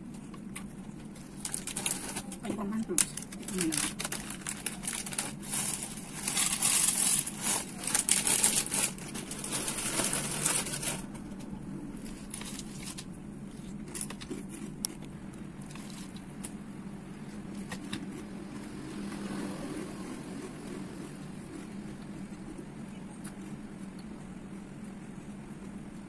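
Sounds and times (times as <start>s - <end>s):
foil bag crinkling: 1.0s - 11.4s, 12.0s - 16.6s.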